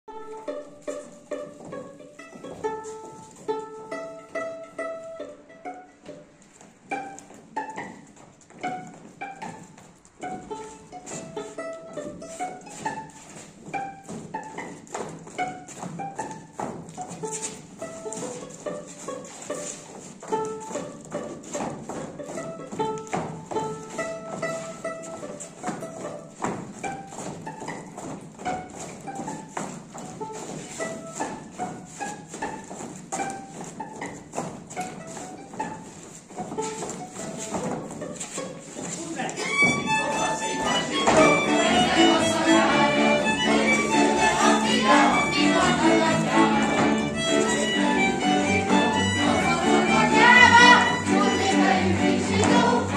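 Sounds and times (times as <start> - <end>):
folk dance tune on strings: 0.0 - 52.9
boots stamping on stage floor: 0.1 - 5.2, 5.8 - 51.6.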